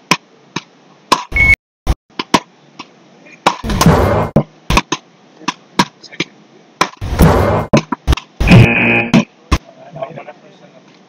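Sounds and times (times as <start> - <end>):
wooden rackets striking ball: 0.1 - 1.3, 2.1 - 8.4.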